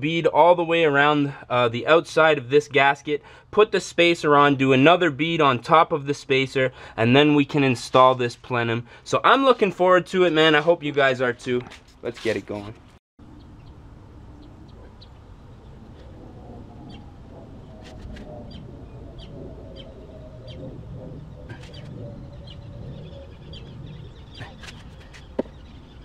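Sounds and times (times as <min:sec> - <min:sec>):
bird chirping: 0:17.9 - 0:26.0.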